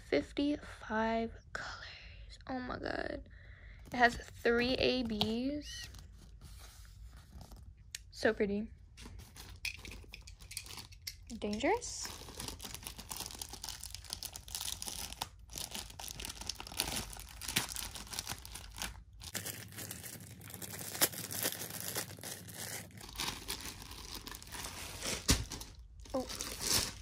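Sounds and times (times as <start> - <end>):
plastic wrap crinkling and tearing: 9.0 - 27.0.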